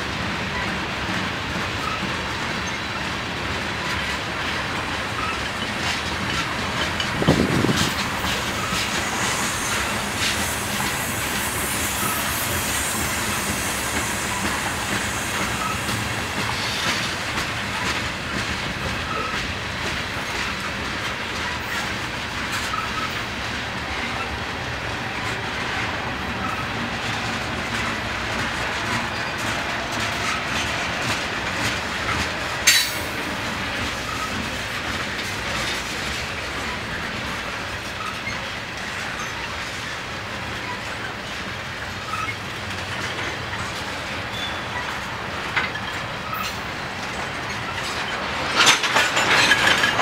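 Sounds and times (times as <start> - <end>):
train wheels rumbling on rails: 0.0 - 50.0
high hiss of wheel noise: 7.8 - 18.1.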